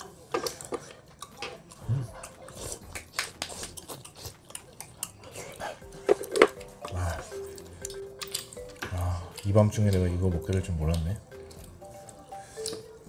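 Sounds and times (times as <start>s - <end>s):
chopsticks clicking on dishes: 0.3s - 12.9s
eating mouth sounds: 0.6s - 9.5s.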